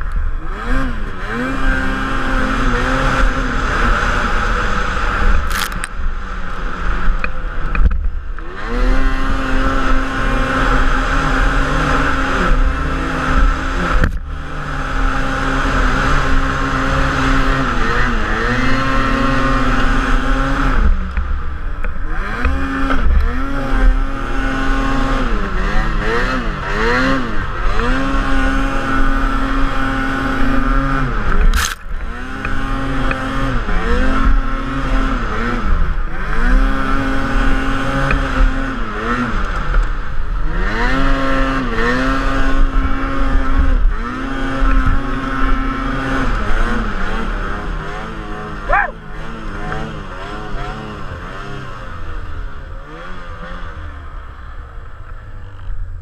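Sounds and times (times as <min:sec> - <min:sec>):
snowmobile engine revving: 0:00.0 - 0:55.9.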